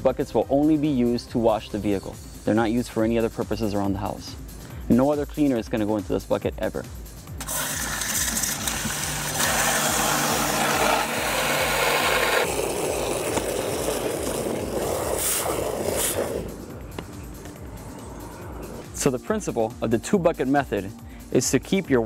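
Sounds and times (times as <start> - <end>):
hose spraying water into bucket: 7.4 - 16.7.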